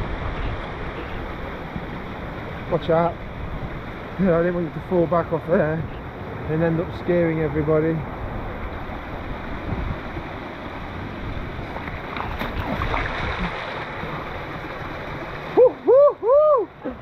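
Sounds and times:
person crying out: 15.6s - 17.0s.

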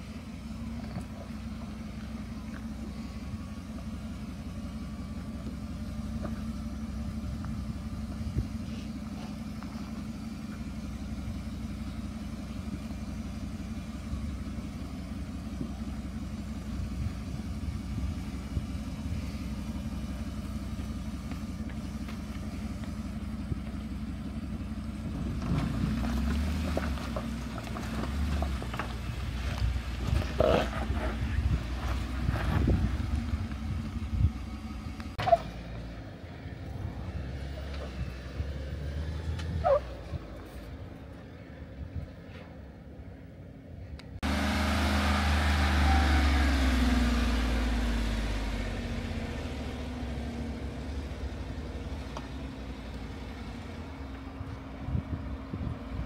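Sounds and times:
vehicle engine running at low revs: 0.0s - 56.0s.

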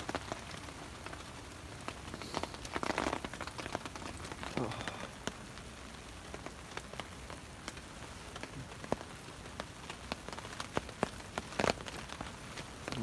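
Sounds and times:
drops ticking on a tarp: 0.0s - 13.0s
sleet hissing on a tarp: 2.0s - 3.3s.

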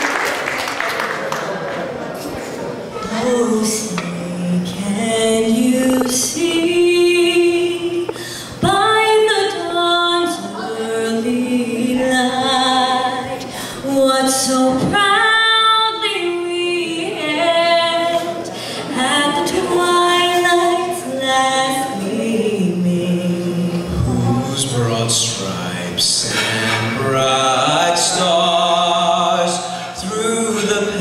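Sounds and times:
woman singing into a microphone: 3.0s - 23.9s.

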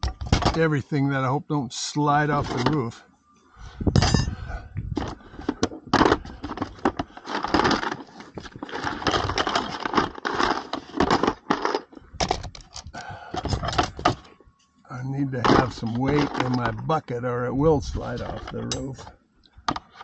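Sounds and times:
metal tools clinking and knocking: 4.0s - 4.4s, 6.0s - 14.2s, 18.2s - 19.0s
scraping and rustling: 4.9s - 14.4s, 15.3s - 16.8s.

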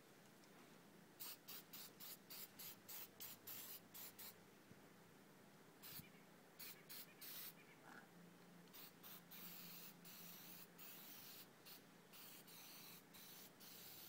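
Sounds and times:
aerosol spray hisses: 1.2s - 4.4s, 8.7s - 14.0s.

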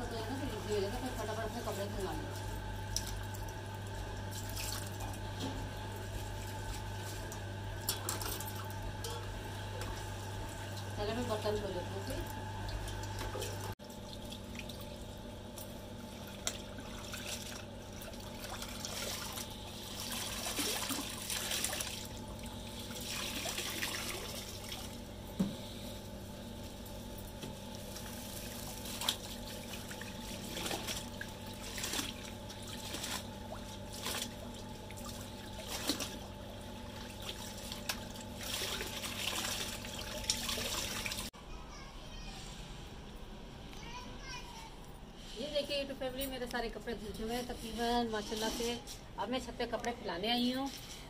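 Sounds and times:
steady low hum: 0.0s - 41.7s
water splashing and dripping: 4.2s - 5.0s, 12.6s - 25.0s, 27.7s - 41.3s.

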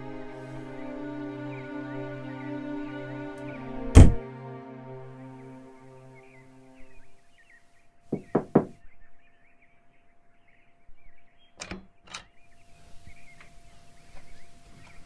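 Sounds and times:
knocks on door: 8.1s - 8.8s.

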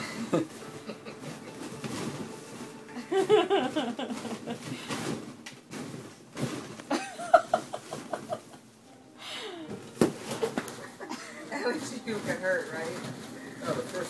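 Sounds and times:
balloons knocking: 9.7s - 10.9s.

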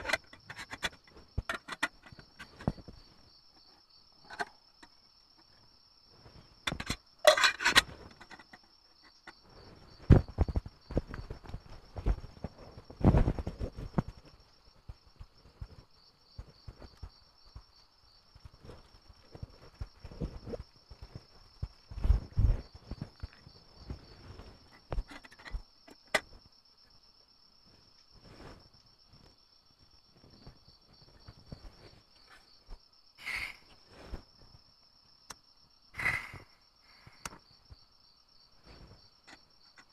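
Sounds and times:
camping gear clicking: 0.0s - 3.0s, 6.6s - 9.4s, 18.5s - 26.4s
crickets trilling: 0.0s - 39.9s
cooking gear scraping and clattering: 6.6s - 8.6s.

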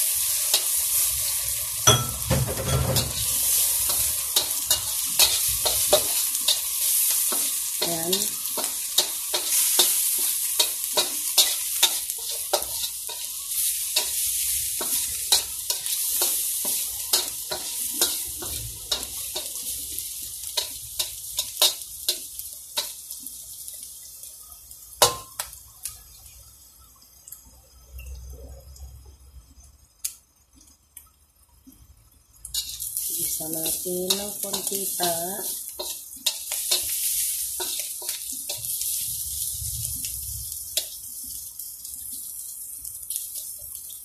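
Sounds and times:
food sizzling in hot oil: 0.0s - 44.0s
metal spatula scraping wok: 0.2s - 19.7s, 32.5s - 39.6s.

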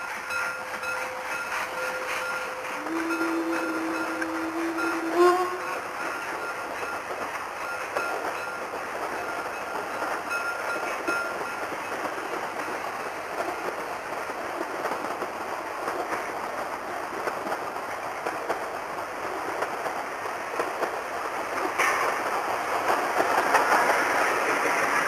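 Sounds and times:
steam hissing: 0.0s - 14.1s
train wheels clattering on rails: 0.0s - 25.0s.

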